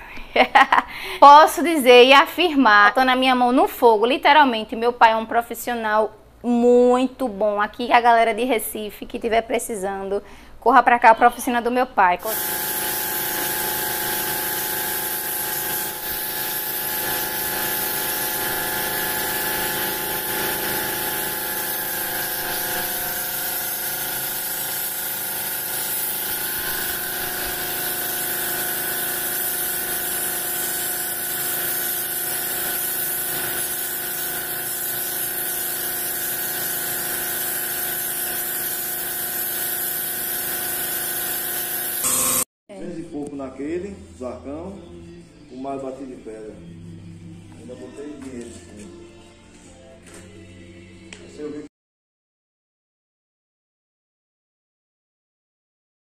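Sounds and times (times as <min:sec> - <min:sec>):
spray gun hissing: 0:12.2 - 0:42.1
mechanical whine: 0:12.3 - 0:42.4.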